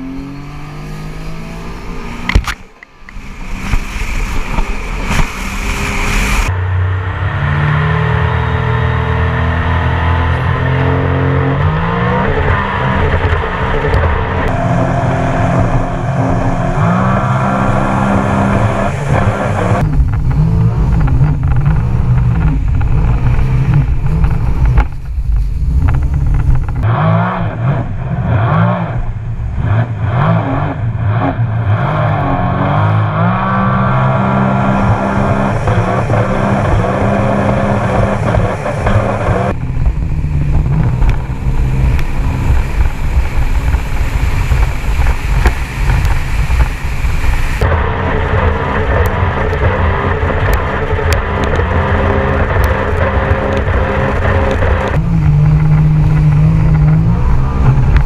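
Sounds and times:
wind: 0.0 - 58.0
rushing water spray: 2.5 - 6.5, 14.4 - 19.9, 33.8 - 39.6, 41.2 - 57.4
jet ski engine running hard: 9.9 - 19.8, 34.1 - 58.0.

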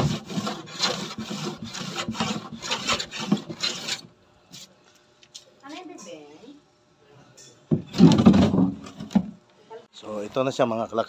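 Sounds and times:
hand plane shaving wood: 0.0 - 4.0.

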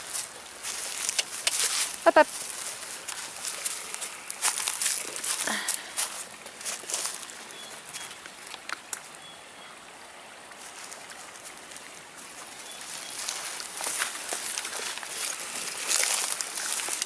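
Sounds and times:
footsteps brushing through weeds: 0.0 - 7.3, 12.8 - 17.0
sharp clicks: 1.0 - 1.7.

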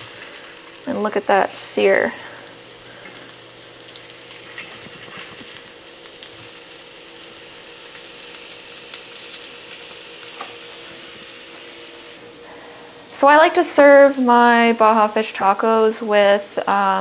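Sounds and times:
fish fillets sizzling in oil: 0.0 - 12.2.

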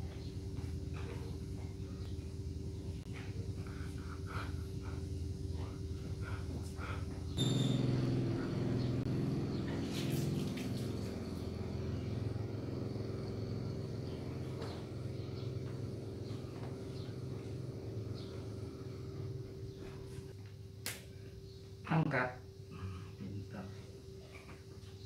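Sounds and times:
motor humming: 0.5 - 20.3
brief high squeal: 7.4 - 8.0.

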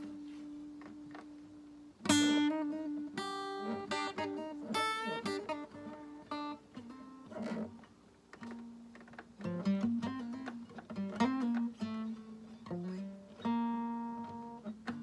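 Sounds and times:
acoustic guitar: 0.0 - 15.0.

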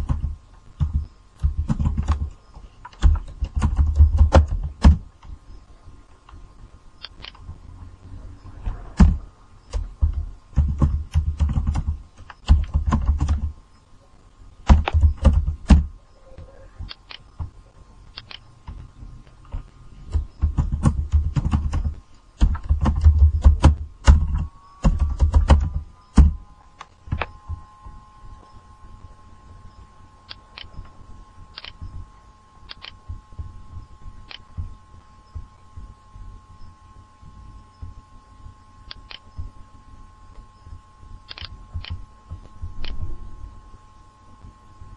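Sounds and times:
computer keyboard typing: 0.0 - 5.0, 9.0 - 13.6, 14.6 - 15.9, 19.4 - 26.4
faint steady whine: 0.0 - 44.9.

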